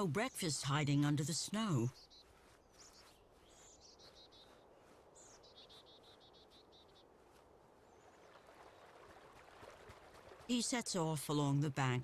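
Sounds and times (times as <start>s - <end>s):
soft bird call: 1.9s - 7.1s.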